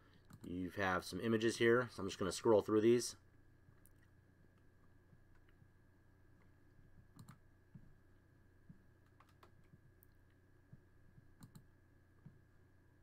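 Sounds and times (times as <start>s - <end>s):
low steady hum: 0.0s - 13.0s
computer mouse clicks: 0.2s - 0.5s, 6.4s - 7.9s, 9.0s - 10.2s, 11.2s - 12.4s.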